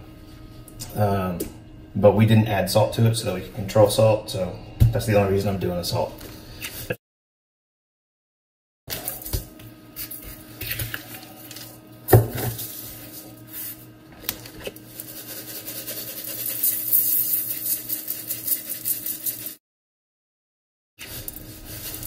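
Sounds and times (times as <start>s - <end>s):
salt grains pattering: 15.0s - 19.5s
shaker rattling: 15.0s - 19.6s.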